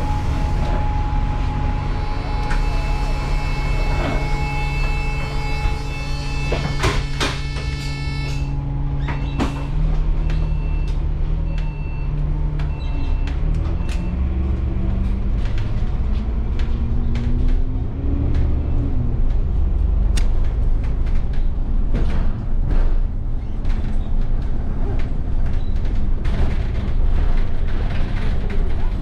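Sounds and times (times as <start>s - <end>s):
bus diesel engine pulling away: 0.0s - 6.6s
steady electronic tone: 0.0s - 8.9s
rattles and knocks: 20.3s - 29.0s.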